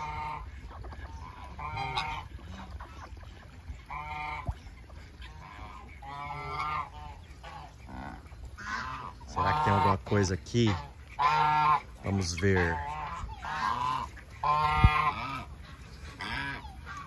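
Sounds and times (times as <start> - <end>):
geese honking: 0.0 - 17.0.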